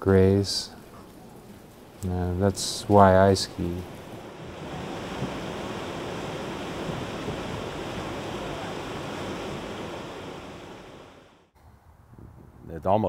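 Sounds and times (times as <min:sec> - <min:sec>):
whitewater rapids roaring: 0:02.4 - 0:11.5.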